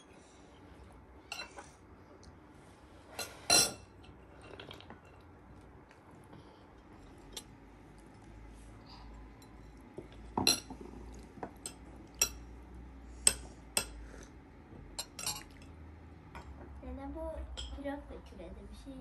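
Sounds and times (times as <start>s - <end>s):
spoons clinking on plates and glasses: 11.5s - 12.5s, 15.0s - 15.7s.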